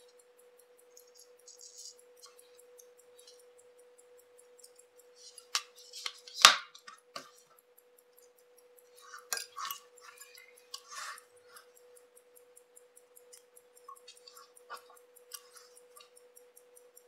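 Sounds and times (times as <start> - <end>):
metal tools clinking on watch parts: 8.9 - 11.6.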